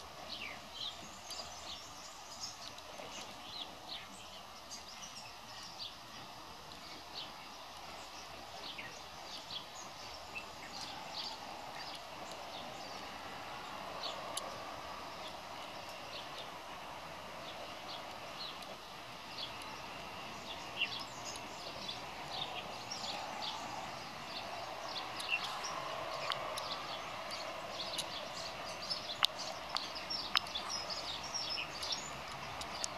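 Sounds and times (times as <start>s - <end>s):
high bird chirps: 19.4s - 32.9s
sharp clicks: 24.9s - 32.9s.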